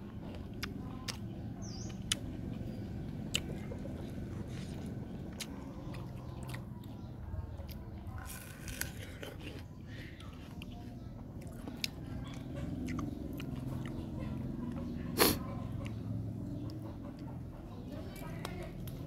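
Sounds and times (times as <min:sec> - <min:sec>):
person chewing crisp fruit: 0:00.0 - 0:17.3.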